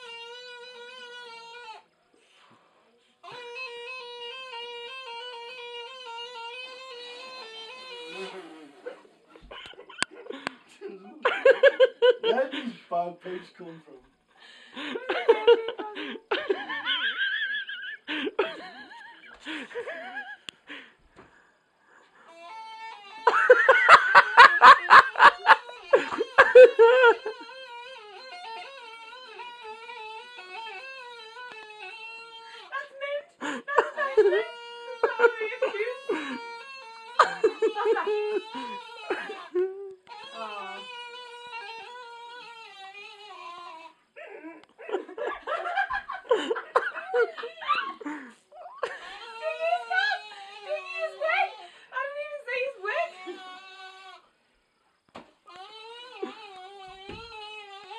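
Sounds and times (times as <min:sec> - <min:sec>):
loud laughing: 0:11.2 - 0:12.7, 0:14.8 - 0:20.9, 0:23.2 - 0:27.6, 0:32.7 - 0:40.8, 0:44.2 - 0:53.4.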